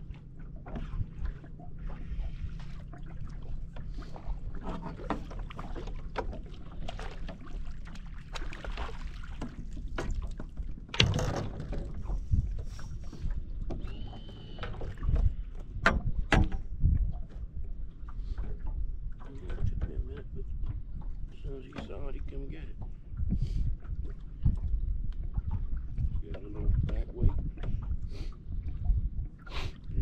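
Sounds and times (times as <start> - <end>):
water lapping on a boat: 0.0 - 30.0
wind: 0.0 - 30.0
gear knocking and clattering on deck: 10.9 - 12.0.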